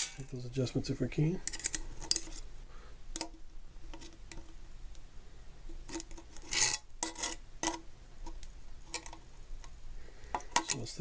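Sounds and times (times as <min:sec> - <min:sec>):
pliers scraping metal: 0:05.9 - 0:07.8.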